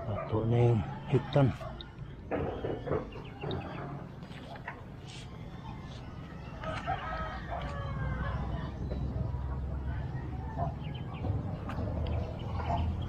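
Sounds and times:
rooster crowing: 6.3s - 8.7s.

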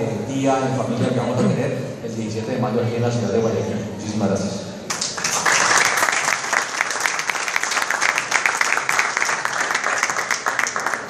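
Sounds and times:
audience applause: 4.9s - 11.0s.

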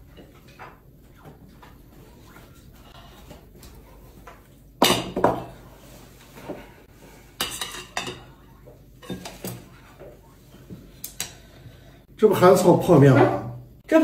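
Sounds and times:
plates clattering on table: 4.8s - 5.6s, 7.4s - 8.4s.

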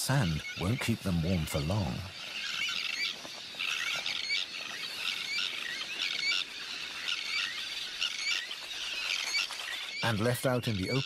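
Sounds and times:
terns calling harshly: 0.0s - 11.0s.

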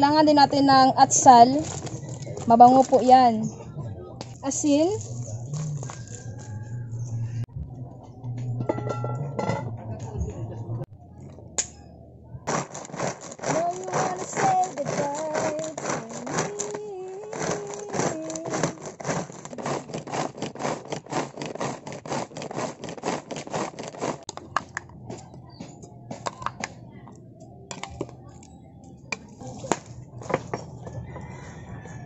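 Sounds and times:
faint background music: 0.0s - 12.8s, 24.2s - 32.0s
faint chickens: 5.0s - 8.3s, 30.5s - 32.0s
hand food chopper blades spinning: 12.5s - 24.3s.

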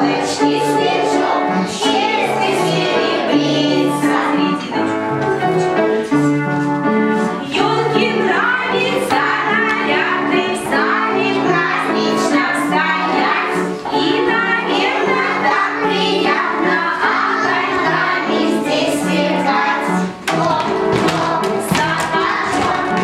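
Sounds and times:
children singing: 0.0s - 5.8s, 7.4s - 23.0s
musical accompaniment: 0.0s - 23.0s
woman singing: 7.5s - 13.3s, 19.4s - 23.0s.

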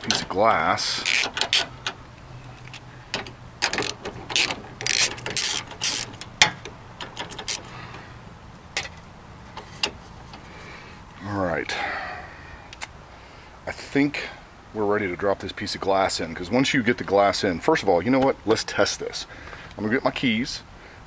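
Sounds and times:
socket ratchet clicking: 1.0s - 2.0s, 2.6s - 7.7s.

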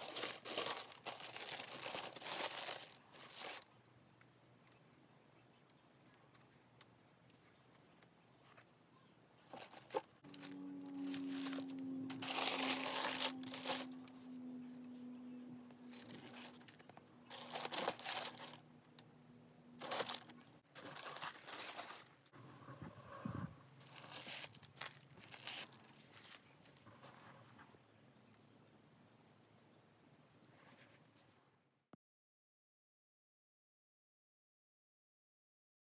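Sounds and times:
tissue paper rustling: 0.0s - 3.7s, 9.5s - 14.4s, 15.9s - 18.6s, 19.8s - 22.3s, 23.8s - 26.8s.

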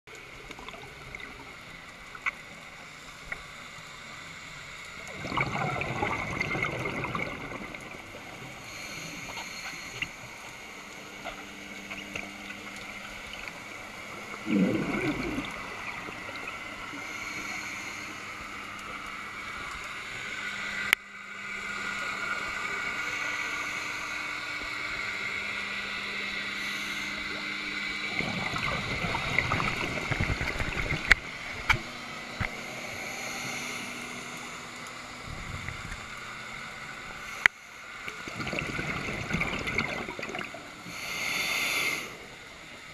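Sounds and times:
underwater hum with high whine: 0.0s - 42.9s
diver's exhaled bubbles: 5.1s - 8.2s, 14.3s - 16.2s, 28.1s - 31.3s, 38.2s - 40.6s.

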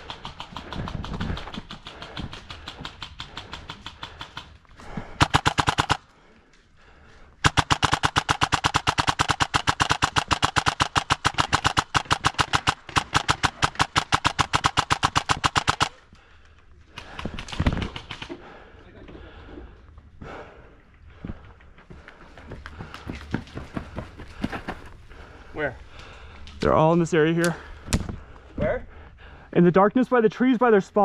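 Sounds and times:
airsoft gun firing full auto: 5.2s - 6.0s, 7.4s - 16.0s.

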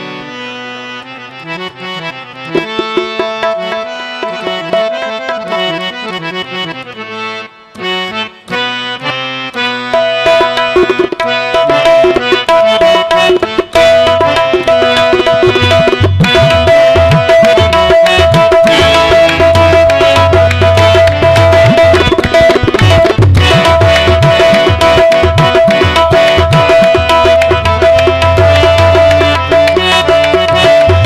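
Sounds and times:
harmoniums playing: 0.0s - 31.0s
hand drums: 2.5s - 5.9s, 9.9s - 31.0s.

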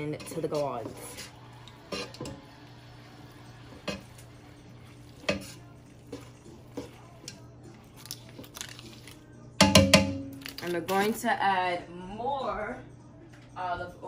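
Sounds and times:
spatula stirring macaroni: 0.0s - 9.2s.

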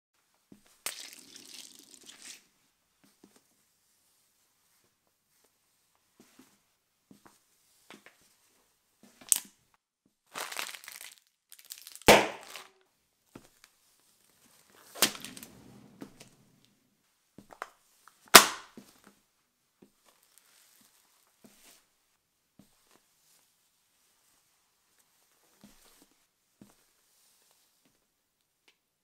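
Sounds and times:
shoe crushing squishy objects: 10.3s - 12.7s
sharp pops under a shoe: 12.1s - 12.7s, 18.4s - 18.7s.

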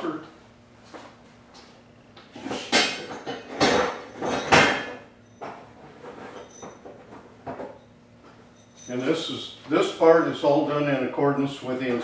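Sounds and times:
short metallic ring: 7.8s - 9.1s.

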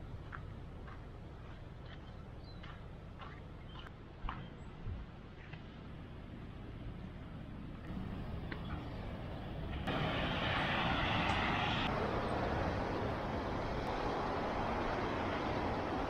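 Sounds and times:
ocean surf breaking: 7.9s - 16.0s.

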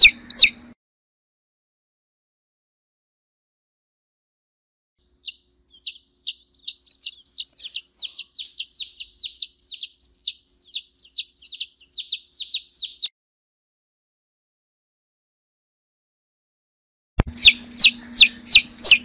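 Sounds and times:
bird chick peeping: 0.0s - 0.8s, 5.0s - 13.1s, 17.2s - 19.0s.

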